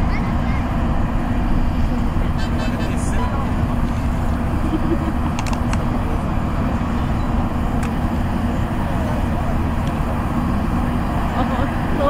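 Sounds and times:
jet engines deep rumble: 0.0s - 12.0s
sharp clicks: 5.3s - 5.8s.

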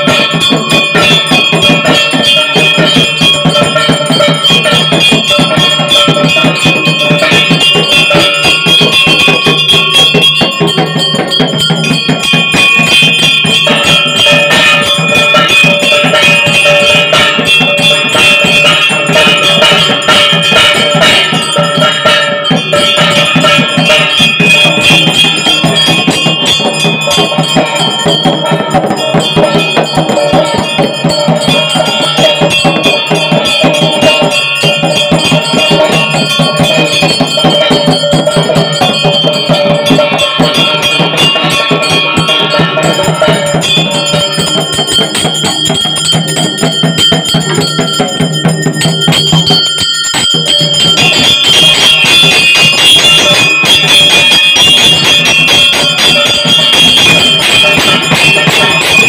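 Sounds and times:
bells ringing rapidly: 0.0s - 59.0s.

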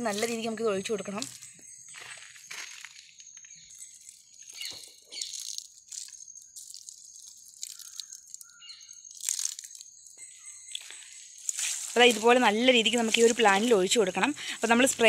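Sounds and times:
liquid splashing on leaves: 4.0s - 10.1s, 10.7s - 15.0s.

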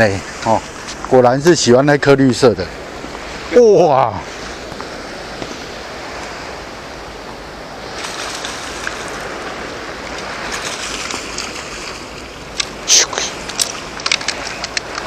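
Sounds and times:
sea water washing against breakwater: 0.0s - 15.0s
fish splashing at the surface: 7.8s - 15.0s.

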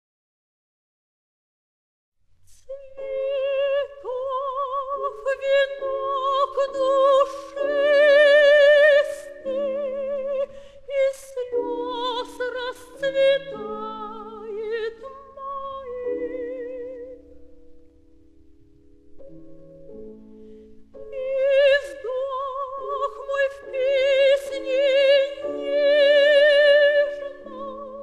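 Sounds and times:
soprano singing: 2.5s - 17.6s, 20.7s - 28.0s
piano chords: 3.0s - 28.0s.

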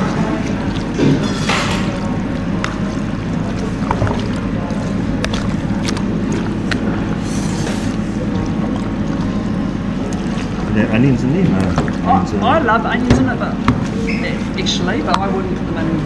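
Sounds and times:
soft wet squishing: 0.0s - 15.6s
steady low hum: 0.0s - 16.0s.

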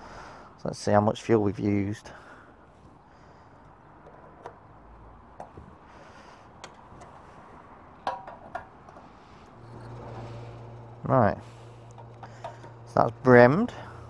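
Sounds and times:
fuel pump hum: 2.1s - 14.0s
fuel nozzle clicks and knocks: 11.8s - 12.8s.

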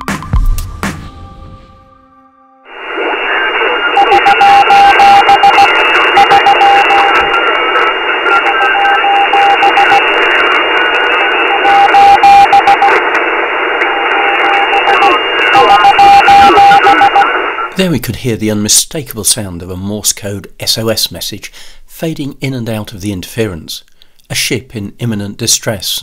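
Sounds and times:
radio static and crackling: 2.7s - 18.0s
morse code beeps: 3.4s - 10.2s, 11.0s - 13.0s, 13.9s - 17.4s.

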